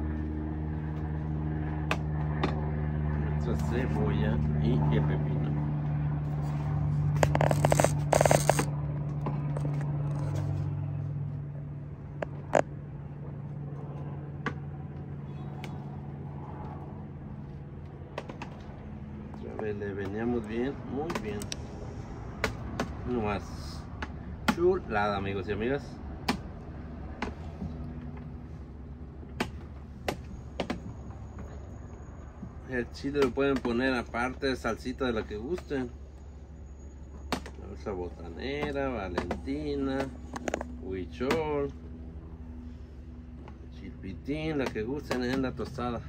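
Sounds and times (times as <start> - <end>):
steady low hum: 0.0 - 46.0
spoon scraping plastic container: 7.2 - 8.7.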